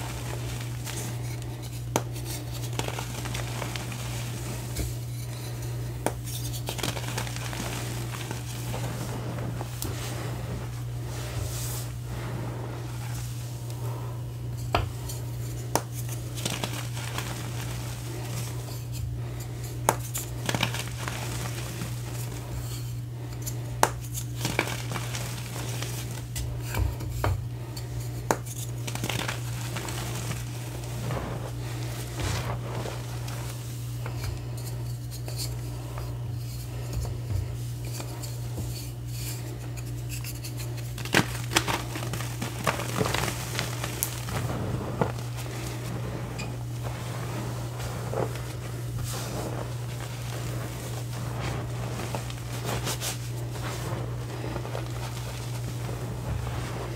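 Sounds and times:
chalk crunching by hand: 0.0 - 14.0, 15.3 - 22.6, 39.4 - 56.9
steady low hum: 0.0 - 56.9.

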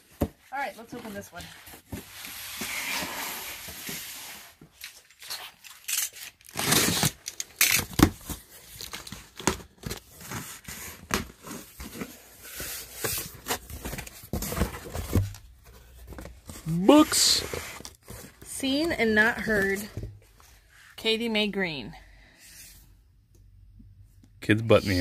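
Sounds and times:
packing tape tearing: 4.8 - 10.0
cardboard flaps rustling: 7.8 - 20.3
cardboard scraping and knocking: 10.2 - 20.2.

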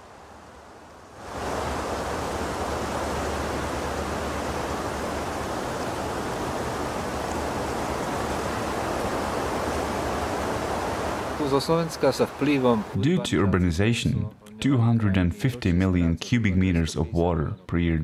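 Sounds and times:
rain rushing: 0.0 - 13.0
wind: 0.0 - 14.6.

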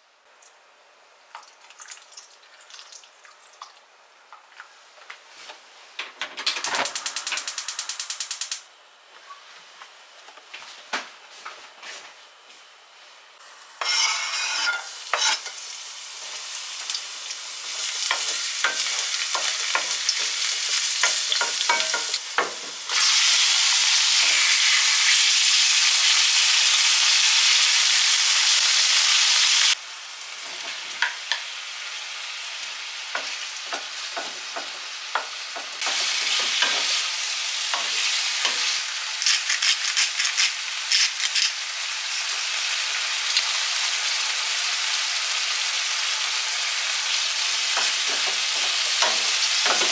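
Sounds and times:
food sizzling in a frying pan: 13.7 - 49.9.

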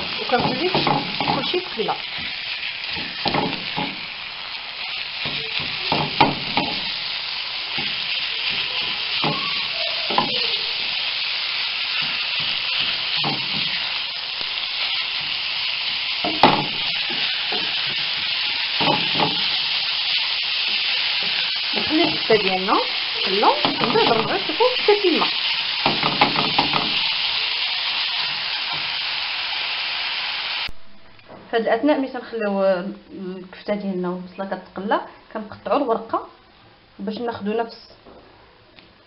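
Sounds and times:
meat sizzling in a pan: 0.0 - 30.8.

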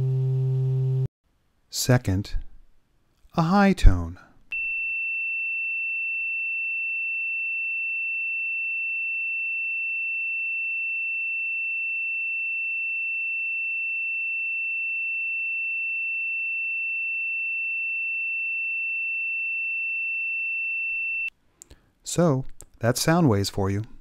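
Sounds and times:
high-pitched sine tone: 4.6 - 21.3.

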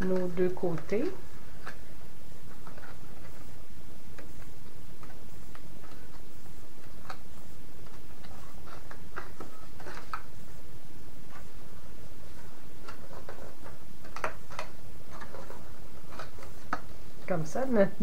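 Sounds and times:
steady low hum: 0.0 - 18.0
cardstock clicks and rustles: 4.1 - 10.4, 12.3 - 17.3.

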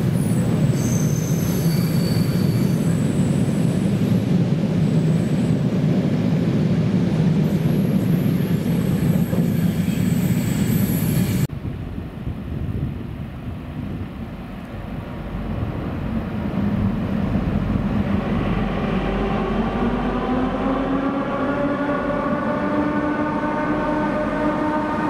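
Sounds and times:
diesel locomotive rumble: 11.3 - 25.0.

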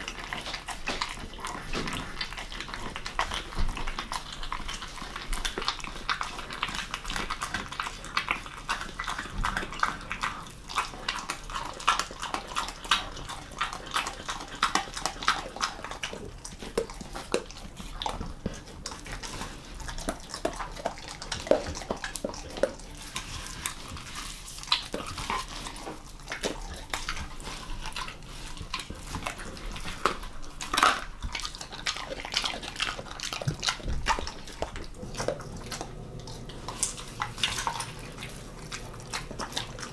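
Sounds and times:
dog chewing and crunching: 0.0 - 39.9.

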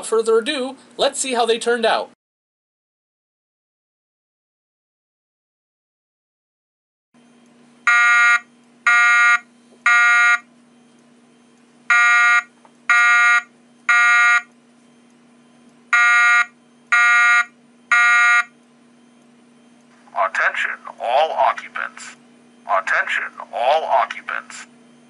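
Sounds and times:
fire alarm horn beeps: 7.8 - 15.1, 15.9 - 19.8.

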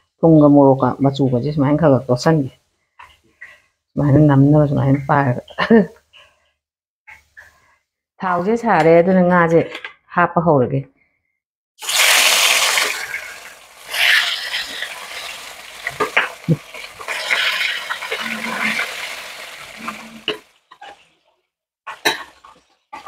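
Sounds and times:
fish sizzling in hot oil: 11.8 - 21.2.

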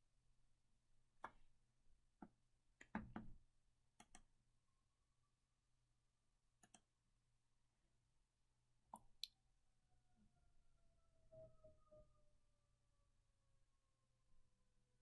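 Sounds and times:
computer mouse clicks: 4.0 - 4.3, 6.6 - 6.9.

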